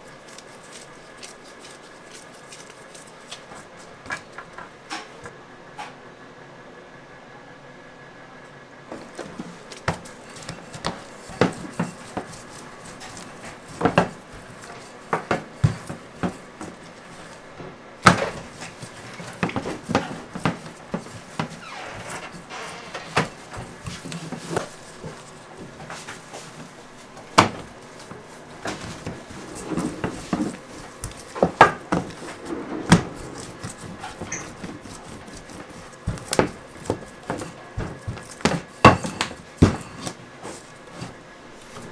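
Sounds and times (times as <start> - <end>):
rolling pin rolling dough on metal: 8.9 - 41.9.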